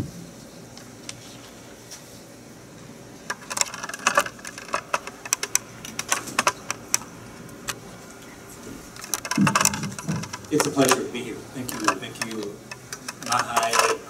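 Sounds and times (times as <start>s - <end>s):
laptop keyboard typing: 9.0s - 11.1s, 11.7s - 14.0s.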